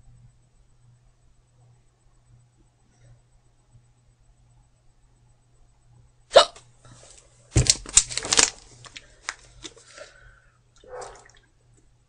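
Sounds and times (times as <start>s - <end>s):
girl hiccuping: 6.3s - 6.6s.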